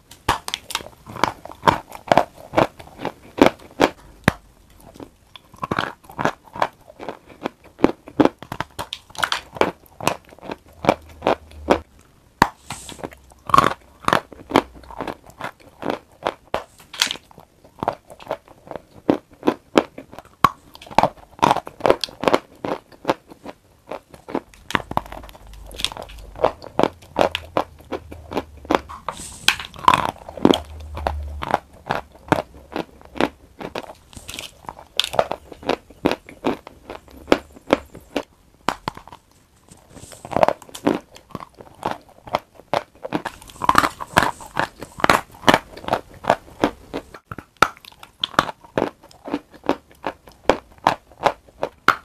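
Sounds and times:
chalk being bitten and chewed: 0:12.5 - 0:38.3, 0:38.9 - 0:52.0.

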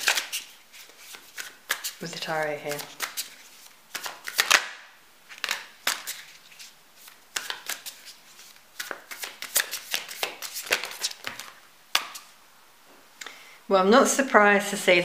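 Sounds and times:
cards being shuffled: 0:00.0 - 0:12.3.

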